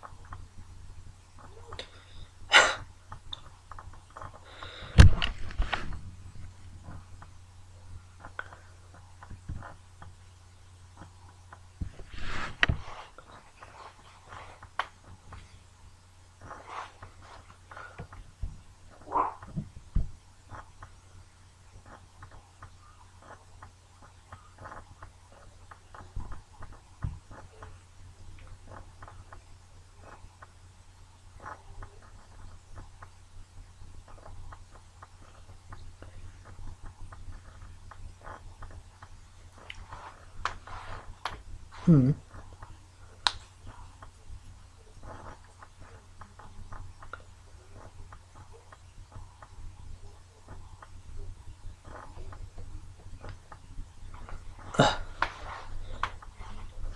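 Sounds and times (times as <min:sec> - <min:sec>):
low steady hum: 0:00.0 - 0:56.9
light rustling at a desk: 0:03.1 - 0:10.3, 0:10.9 - 0:15.6, 0:16.4 - 0:30.6, 0:31.4 - 0:56.9.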